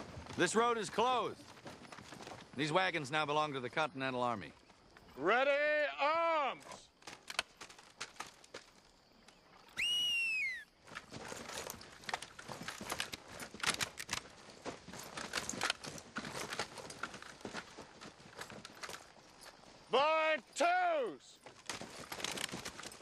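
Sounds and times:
horse hooves clattering: 0.0 - 5.4, 6.4 - 10.0, 10.6 - 23.0
tack jingling: 10.9 - 23.0.

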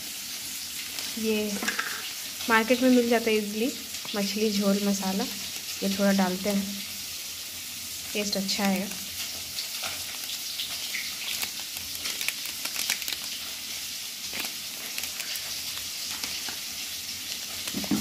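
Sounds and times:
fish sizzling in hot oil: 0.0 - 18.0.

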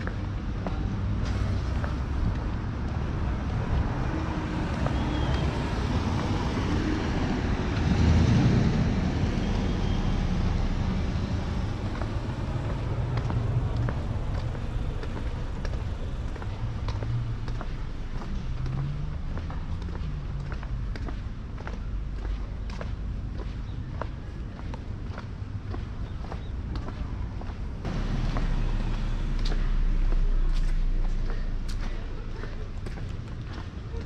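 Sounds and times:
street traffic rumble: 0.0 - 34.0
vehicle passing close: 1.2 - 20.8, 27.8 - 33.0.

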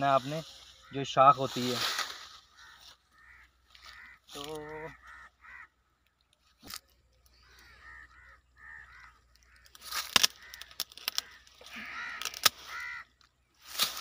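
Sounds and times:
crows cawing: 0.0 - 6.0, 6.6 - 13.3
pruning shears snapping: 9.7 - 11.4, 12.2 - 12.7.

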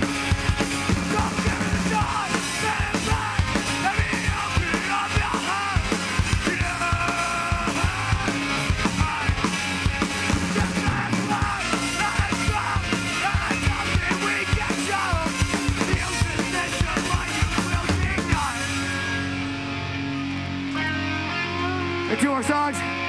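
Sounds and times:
drum kit pounding: 0.0 - 19.9
bass guitar: 0.0 - 23.0
distorted electric guitars: 0.0 - 23.0
shouted vocals: 0.9 - 9.4, 10.5 - 18.6.

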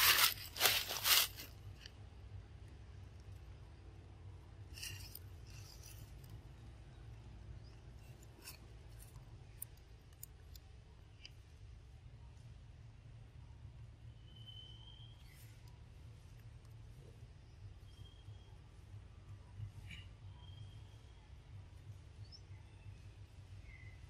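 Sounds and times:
dry leaves crunching: 0.0 - 1.6.

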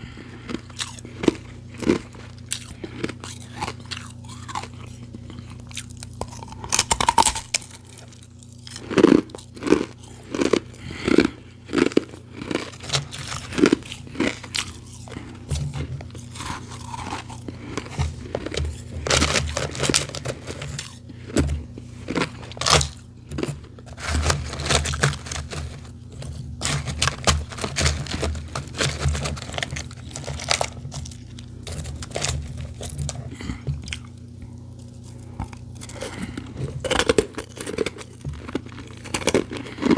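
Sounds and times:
ice being chewed: 0.0 - 39.9
hand digging through ice: 23.4 - 33.1.

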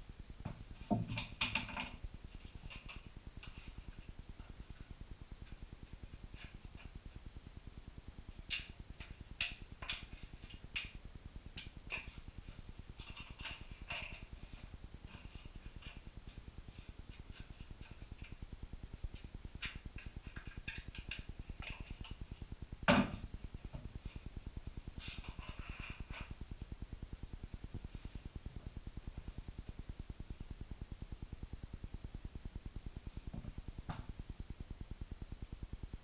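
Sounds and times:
steady low buzz: 26.2 - 36.0.

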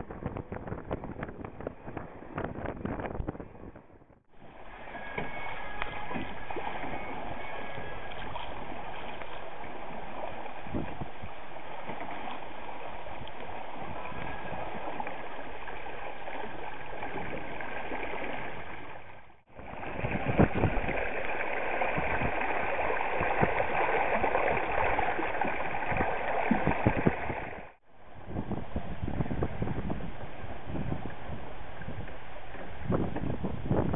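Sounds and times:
water rushing along a boat hull: 0.0 - 33.9
water gurgling and splashing: 4.4 - 27.8.

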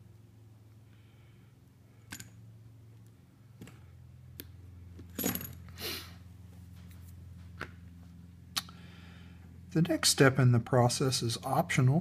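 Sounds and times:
metallic clatter with ring: 5.1 - 5.7.

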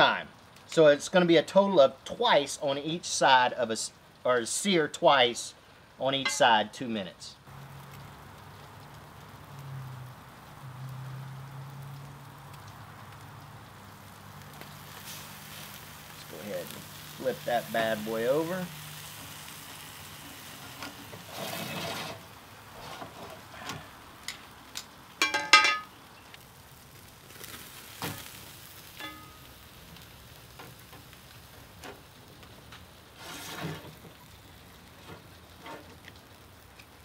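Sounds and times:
steak sizzling on a grill: 0.0 - 37.0
clicks and scrapes: 20.7 - 25.9, 33.2 - 34.1.

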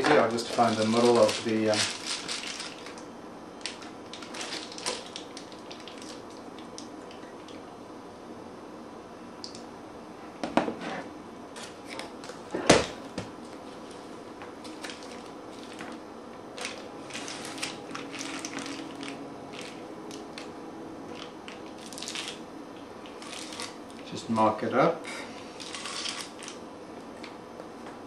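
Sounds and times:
foil insulation crinkling: 0.0 - 3.0, 3.6 - 6.7, 14.6 - 16.0, 16.6 - 20.5, 21.1 - 22.4, 23.0 - 23.8, 25.5 - 26.6.

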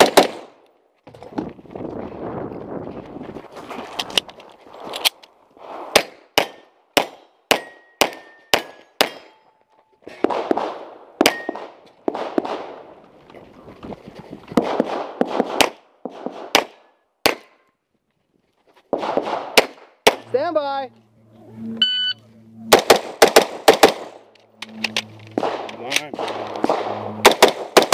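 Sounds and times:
pistol shots: 0.0 - 0.5, 5.9 - 9.3, 10.2 - 12.8, 14.6 - 17.6, 18.9 - 20.3, 22.7 - 24.2, 25.4 - 27.9
movement noise: 20.3 - 22.8, 24.1 - 27.3.

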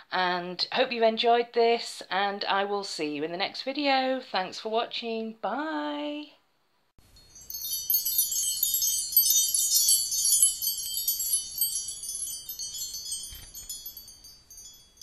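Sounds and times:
wind chimes tinkling: 7.0 - 15.0.

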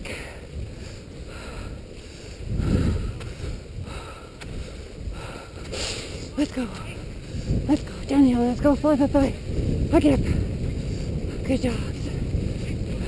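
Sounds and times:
wind buffeting microphone: 0.0 - 13.0
skis swishing on snow: 5.6 - 9.9.

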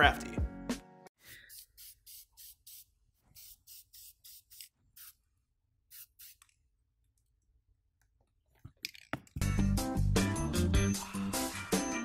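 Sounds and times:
spray paint can hissing: 1.5 - 5.2, 5.9 - 6.5.

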